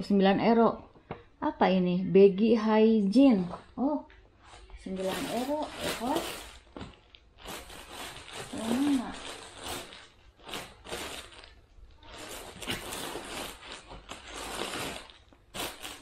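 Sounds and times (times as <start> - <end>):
plastic bags and paper rustling: 4.4 - 16.0.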